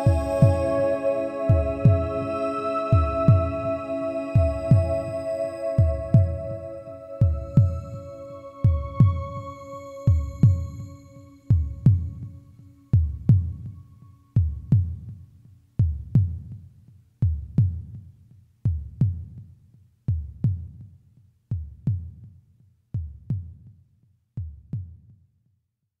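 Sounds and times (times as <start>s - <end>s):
heartbeat-like low thumps: 0.0s - 0.8s, 1.5s - 2.3s, 2.9s - 3.8s, 4.4s - 9.4s, 10.1s - 10.9s, 11.5s - 12.3s, 13.0s - 13.7s.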